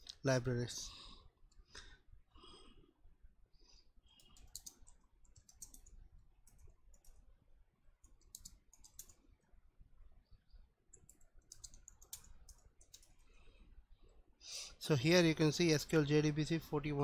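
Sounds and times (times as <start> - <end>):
computer keyboard typing: 4.2 - 7.3, 8.0 - 9.2, 10.9 - 13.3.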